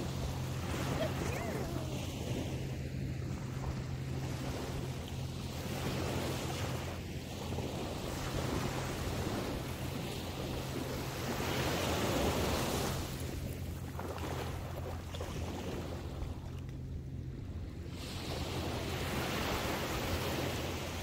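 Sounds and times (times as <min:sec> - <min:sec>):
small waves breaking on shore: 0:00.0 - 0:21.0.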